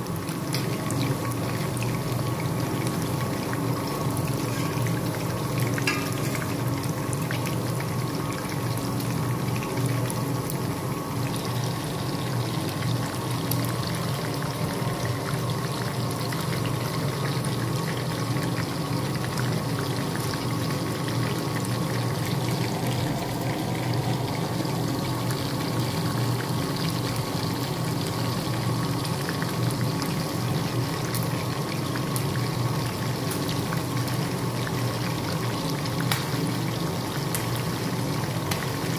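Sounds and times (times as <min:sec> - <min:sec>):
deep-frying sizzle and crackle: 0:00.0 - 0:38.9
steady low hum: 0:20.4 - 0:27.0.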